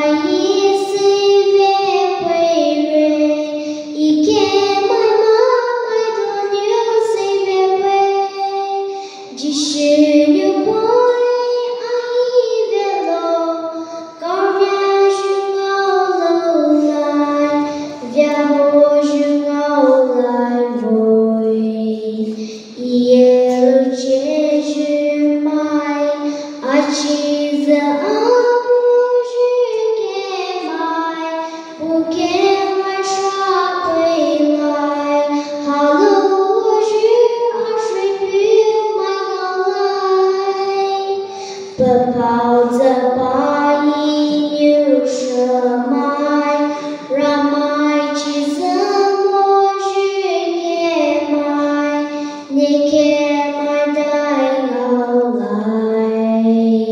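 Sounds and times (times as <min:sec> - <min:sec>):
girl singing: 0:00.0 - 0:56.9.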